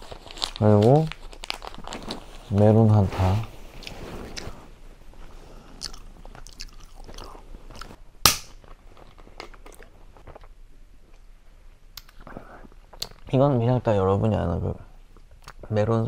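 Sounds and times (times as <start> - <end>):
chewing with wet mouth clicks: 5.8 - 8.0.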